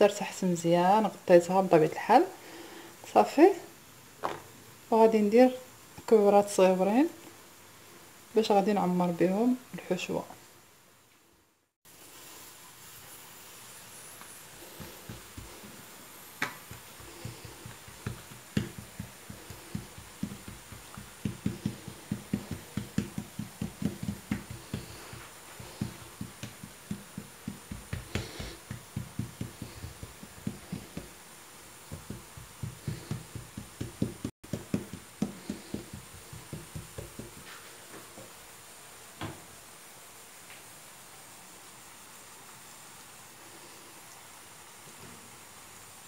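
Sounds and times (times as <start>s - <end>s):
hands slapping dough: 14.2s - 31.2s, 31.8s - 37.5s.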